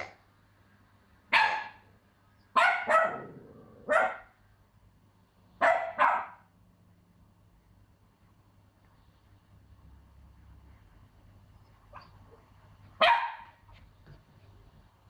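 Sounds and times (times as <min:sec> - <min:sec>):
puppy barking: 0:00.0 - 0:00.2, 0:01.3 - 0:01.9, 0:02.5 - 0:04.4, 0:05.6 - 0:06.5, 0:11.9 - 0:13.7.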